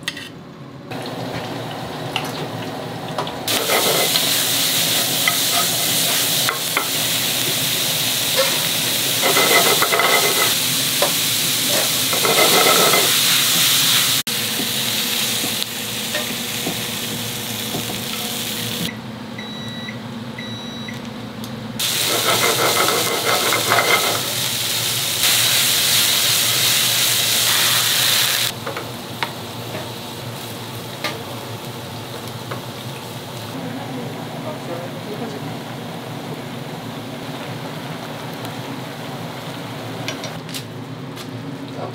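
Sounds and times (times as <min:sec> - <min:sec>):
food sizzling in hot pans: 0:03.5 - 0:18.9, 0:21.8 - 0:34.0
metal utensils clinking: 0:09.2 - 0:10.6.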